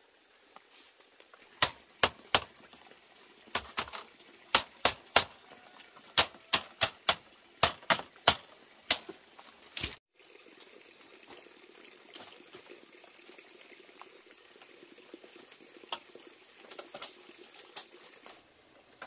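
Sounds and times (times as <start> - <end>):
machete knocking on bamboo mat: 6.2 - 9.1.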